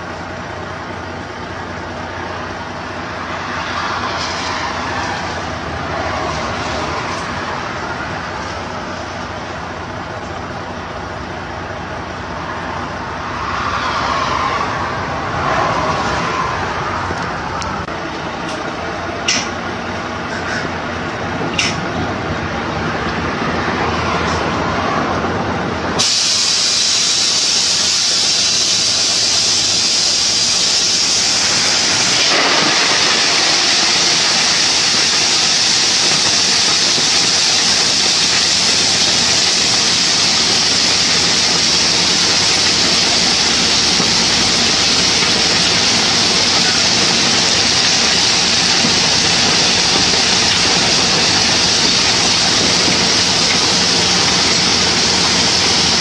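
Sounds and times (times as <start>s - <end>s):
truck tipper rushing hiss: 0.0s - 18.6s, 25.8s - 56.0s.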